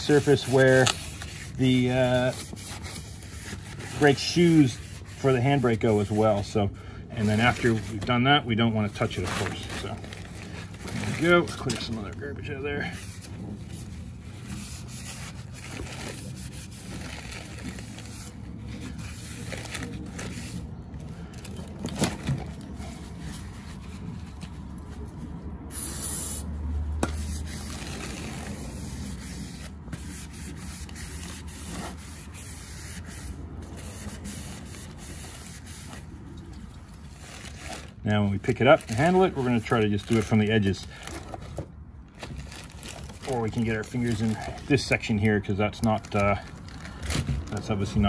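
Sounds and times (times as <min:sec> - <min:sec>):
paper towel rubbing on brake rotor: 0:00.0 - 0:20.8, 0:27.1 - 0:36.3, 0:36.9 - 0:41.0, 0:43.2 - 0:45.3
aerosol spray hiss: 0:25.7 - 0:26.4.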